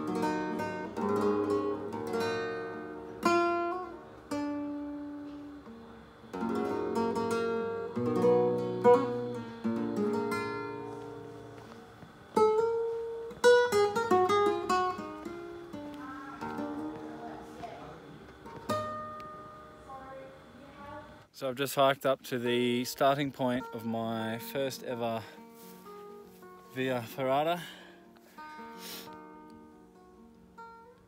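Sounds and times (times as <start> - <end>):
classical guitar fingerstyle: 0.0 - 21.2, 22.5 - 31.0.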